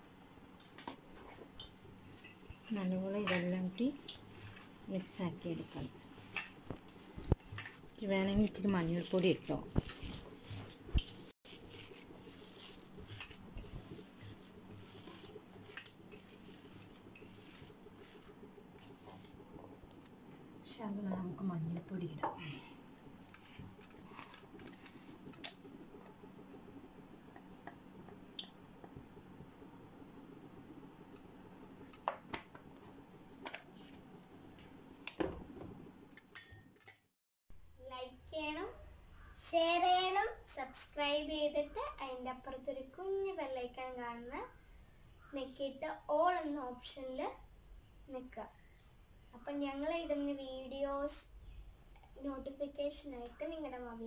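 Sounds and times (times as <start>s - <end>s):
low steady hum: 0.0s - 36.9s.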